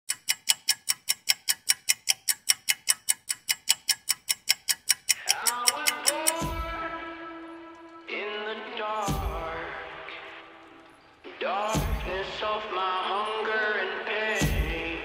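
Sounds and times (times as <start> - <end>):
clock ticking fast: 0.1 - 6.7
music: 5.2 - 15.0.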